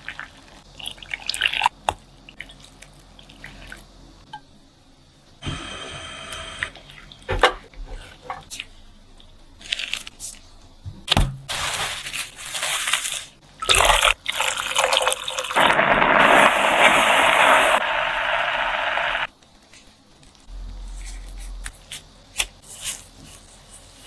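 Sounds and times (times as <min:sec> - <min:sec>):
steady hiss: 0:15.6 - 0:24.0.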